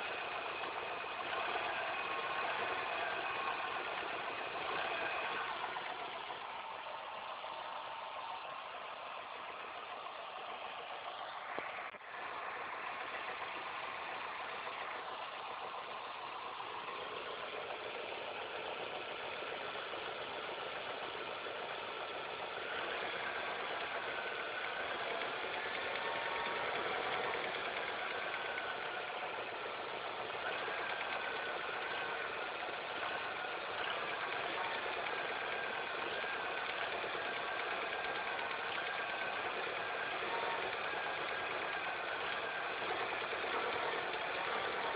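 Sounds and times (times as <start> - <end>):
car engine idling: 0.0 - 44.9.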